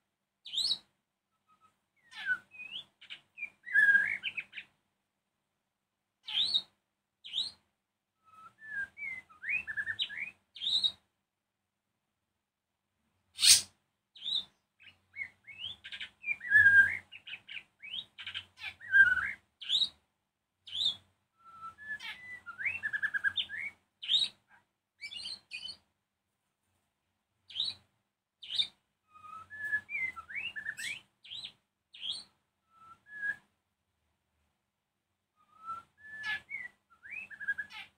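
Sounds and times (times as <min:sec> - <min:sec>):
bird singing whistled phrases: 0:01.5 - 0:04.6, 0:08.2 - 0:10.9, 0:15.2 - 0:19.9, 0:20.7 - 0:24.3, 0:28.4 - 0:33.5, 0:35.4 - 0:37.9.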